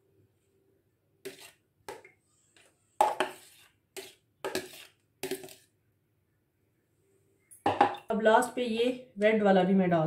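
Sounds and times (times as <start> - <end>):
metal spoon scraping bowl: 1.2 - 5.7.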